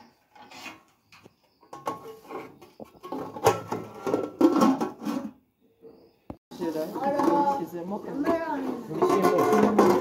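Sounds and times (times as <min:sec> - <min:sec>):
wooden spoon scraping metal pot: 0:00.0 - 0:05.4, 0:06.6 - 0:10.0
pot lid clattering: 0:09.0 - 0:10.0.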